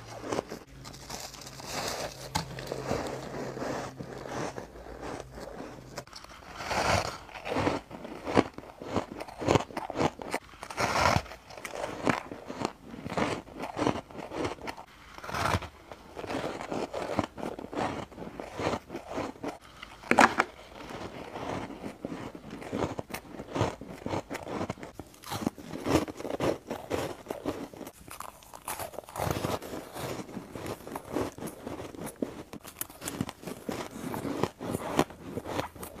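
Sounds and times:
ice crunching: 0.0s - 36.0s.

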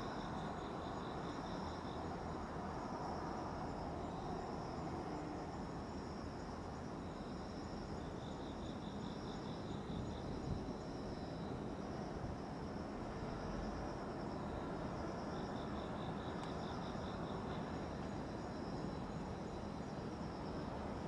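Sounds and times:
crickets chirping: 0.0s - 21.0s
low pulsing insect trill: 0.0s - 21.0s.

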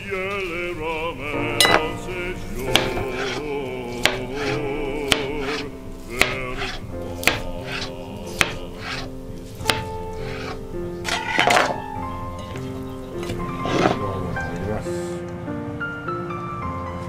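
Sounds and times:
background music: 0.0s - 17.0s
knife tapping cutting board: 4.0s - 4.5s, 5.1s - 5.6s, 6.2s - 10.6s.

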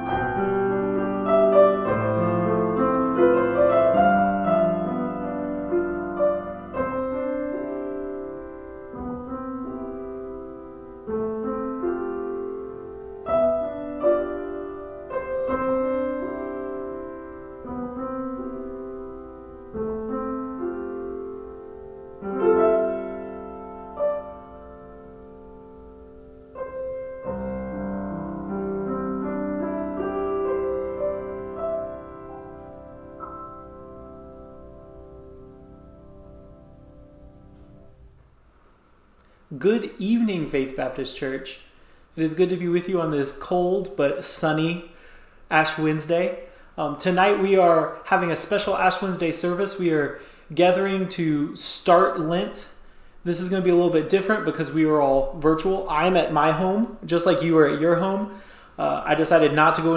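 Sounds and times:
solo piano playing slow chords: 0.0s - 38.4s.

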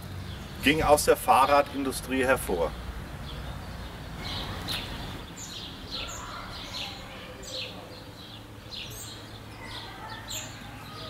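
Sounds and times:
steady low hum: 0.0s - 10.0s
small birds chirping: 0.0s - 11.0s.

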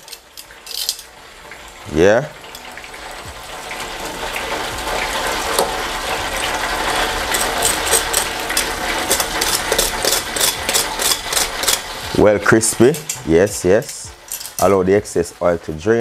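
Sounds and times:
chicken deep-frying in oil: 0.0s - 16.0s
metal tongs clicking on wire basket: 13.8s - 14.7s.

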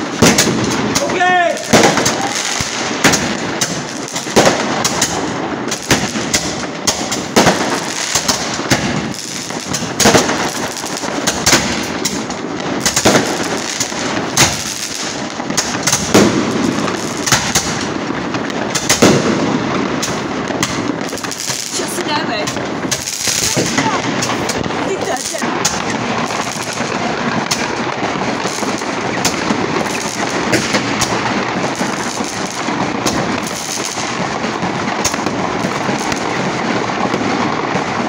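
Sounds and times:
fireworks bangs: 0.0s - 38.0s
fireworks crackling: 0.0s - 38.0s
roman candle firing: 0.0s - 38.0s.

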